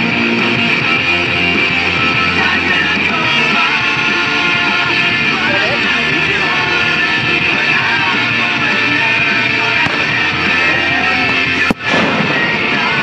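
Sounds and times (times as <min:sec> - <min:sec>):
rock music with guitar: 0:00.0 - 0:13.0
sharp bang: 0:09.8 - 0:12.8.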